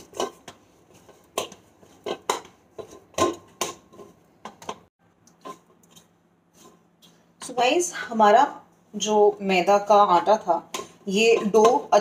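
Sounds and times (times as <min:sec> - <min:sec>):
dough thudding in a metal bowl: 0:00.0 - 0:05.7.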